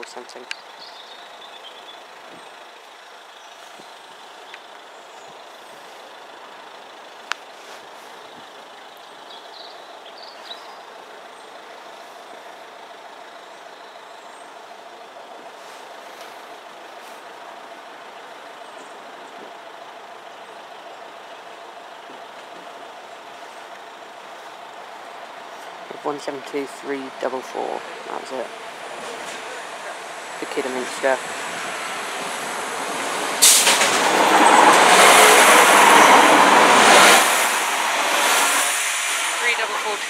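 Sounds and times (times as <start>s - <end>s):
distant diesel train approaching: 0.0s - 40.0s.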